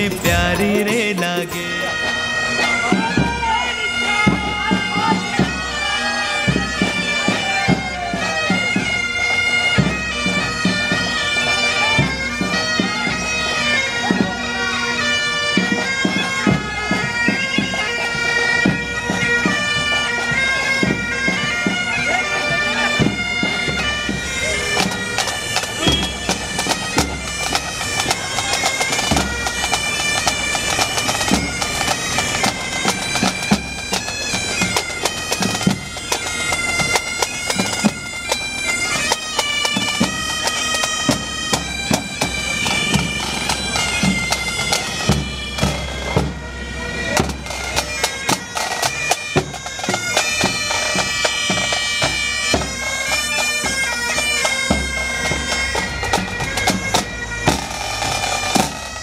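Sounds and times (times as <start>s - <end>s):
drum beats: 0.0s - 5.6s, 23.0s - 46.4s, 47.1s - 58.8s
bagpipes playing a melody: 0.0s - 59.0s.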